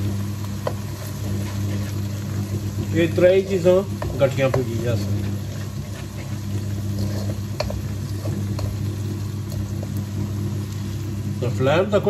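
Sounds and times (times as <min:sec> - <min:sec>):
onions frying in a wok: 0:00.0 - 0:12.0
steady low hum: 0:00.0 - 0:12.0
wooden spatula scraping pan: 0:00.6 - 0:10.0.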